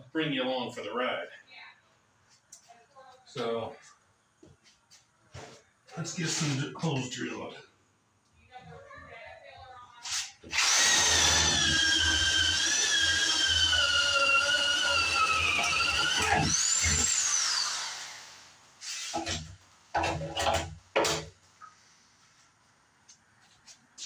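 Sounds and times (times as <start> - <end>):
electric drill boring wood: 10.1 - 20.6.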